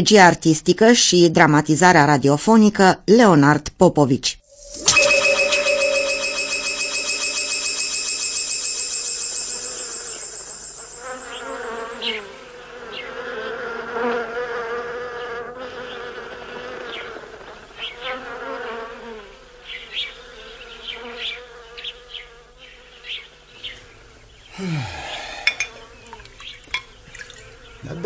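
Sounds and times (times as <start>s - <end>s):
short high chirps: 4.5s - 12.6s
flies buzzing: 9.1s - 23.0s.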